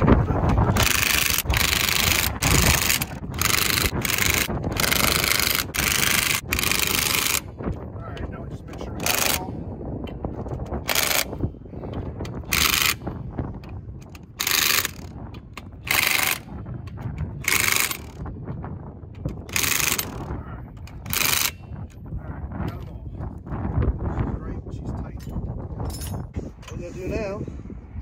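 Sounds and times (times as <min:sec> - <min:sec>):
impact wrench hammering lug nuts: 0:00.8 - 0:07.4, 0:10.8 - 0:11.4, 0:14.0 - 0:16.5, 0:19.2 - 0:20.2.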